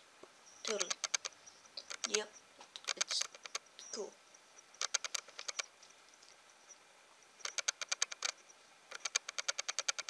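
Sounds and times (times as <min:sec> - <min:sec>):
rapid clicking taps: 0:04.8 - 0:05.7, 0:07.4 - 0:10.0.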